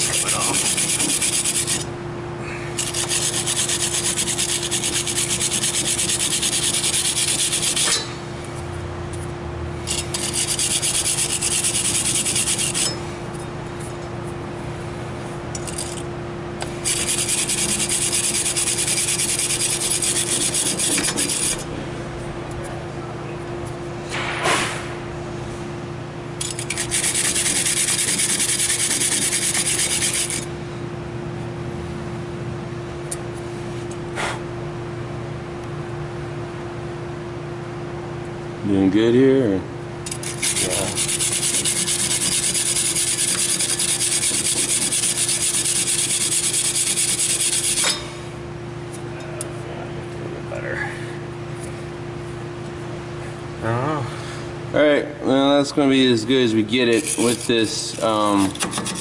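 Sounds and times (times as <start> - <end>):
wire brush scrubbing rust: 0.0 - 1.9, 2.8 - 8.1, 9.9 - 13.1, 16.6 - 21.7, 26.4 - 30.5, 40.1 - 48.1, 56.7 - 59.0.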